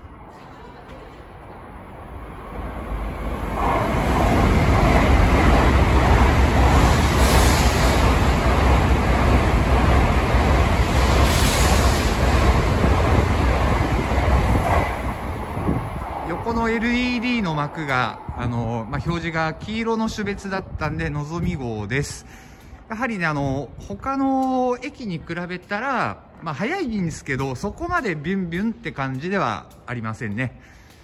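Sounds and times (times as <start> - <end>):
train passing at speed: 0.0 - 24.1.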